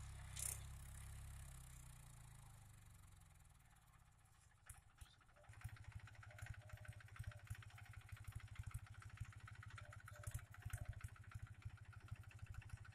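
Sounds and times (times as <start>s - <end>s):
tractor diesel engine chugging: 4.8s - 12.9s.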